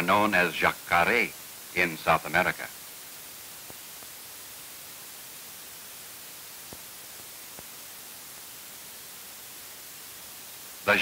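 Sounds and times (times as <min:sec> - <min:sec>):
narration voice: 0:00.0 - 0:02.8
old film soundtrack hiss: 0:00.0 - 0:11.0.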